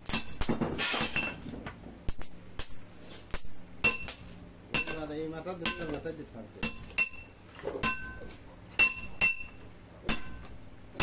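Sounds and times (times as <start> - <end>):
hammer striking hot steel on anvil: 0.0 - 1.4, 2.1 - 11.0
metallic ring: 6.7 - 8.2, 8.8 - 10.5.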